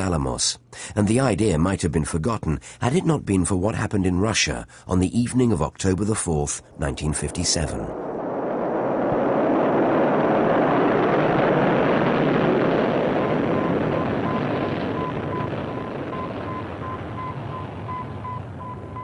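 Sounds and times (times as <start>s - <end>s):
rocket launch roar: 6.7s - 19.0s.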